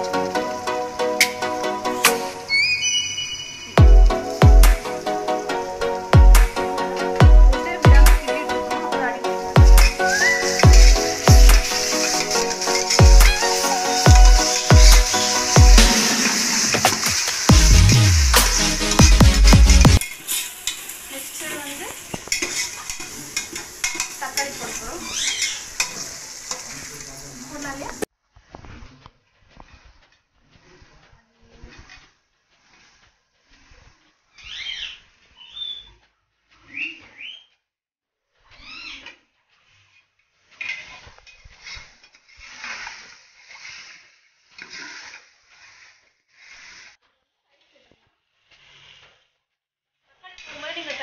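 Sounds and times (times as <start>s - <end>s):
onions and spices sizzling in oil: 0.0s - 28.1s, 29.4s - 35.8s, 39.6s - 47.0s, 50.4s - 51.0s
ladle scraping metal pot: 4.2s - 20.8s, 22.2s - 27.0s.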